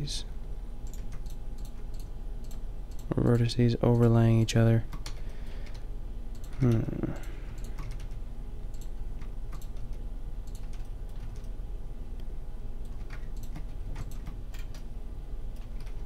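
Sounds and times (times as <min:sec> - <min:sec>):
low steady hum: 0:00.0 - 0:16.0
keyboard and mouse clicking: 0:00.8 - 0:03.2, 0:04.9 - 0:11.5, 0:12.8 - 0:14.9, 0:15.6 - 0:16.0
person's brief voiced sound: 0:06.6 - 0:07.2.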